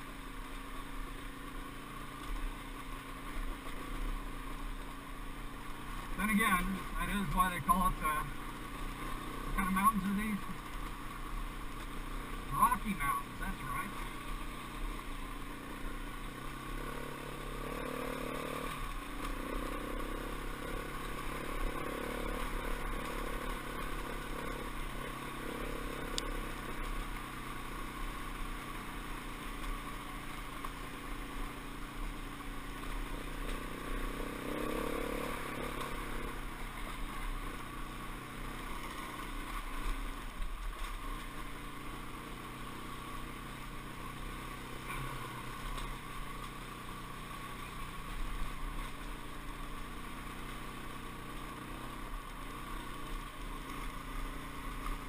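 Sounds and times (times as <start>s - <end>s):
dirt bike engine revving: 0.9s - 55.0s.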